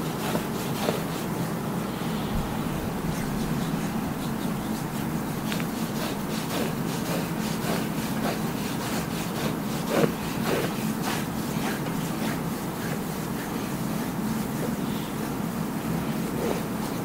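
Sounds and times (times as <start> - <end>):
hands rubbing skin: 2.4 - 14.8.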